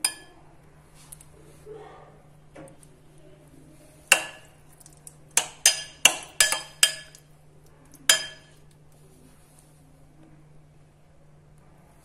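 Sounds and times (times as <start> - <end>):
spoon clinking against glass bowl: 0.0 - 0.3, 4.1 - 7.3, 8.1 - 8.6.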